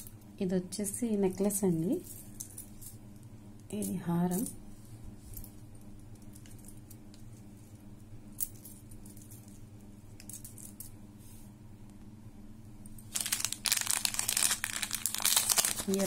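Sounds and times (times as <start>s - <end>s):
steady low hum: 0.0s - 16.0s
plastic packet crinkling: 13.1s - 16.0s.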